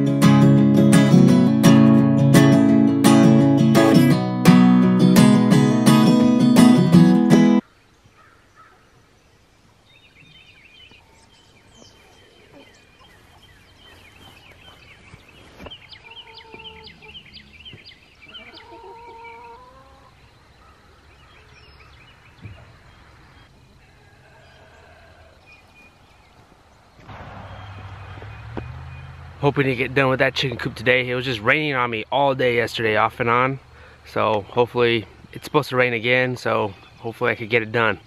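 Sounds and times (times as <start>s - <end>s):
bird calls: 7.6s - 31.0s
chickens clucking and peeping: 11.6s - 21.5s.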